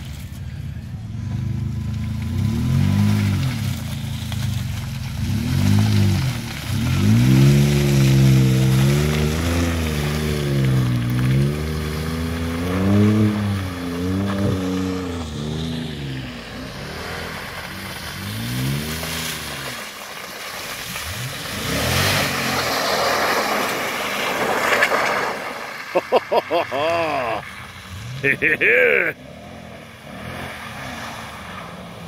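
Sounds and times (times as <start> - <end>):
spinning tires throwing mud: 1.5 - 29.1
truck engine revving: 5.2 - 19.7, 21.0 - 25.3, 25.9 - 31.2.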